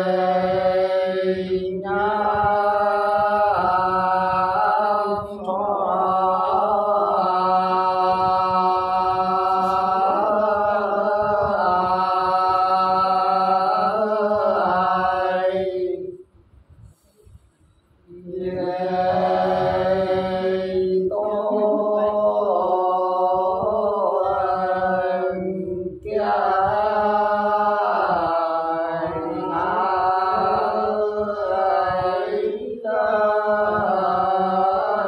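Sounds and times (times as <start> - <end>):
men singing unaccompanied: 0.0 - 16.2, 18.1 - 35.0.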